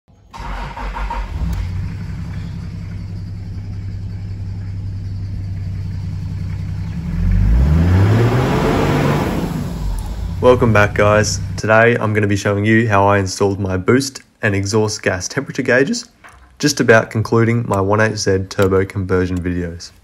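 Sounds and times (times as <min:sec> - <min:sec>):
diesel engine idling and revving: 0:00.3 - 0:11.8.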